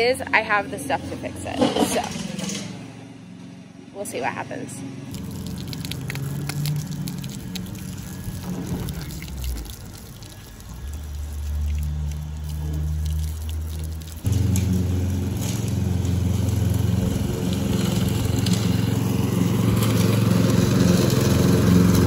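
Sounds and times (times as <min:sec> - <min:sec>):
low engine hum: 0:00.0 - 0:22.0
lawn mower engine running: 0:04.8 - 0:22.0
hose water spraying on windows: 0:05.1 - 0:22.0.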